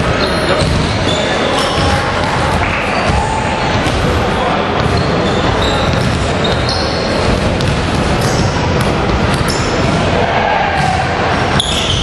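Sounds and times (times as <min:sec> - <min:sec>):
basketball bouncing on wooden floor: 0:04.8 - 0:10.0.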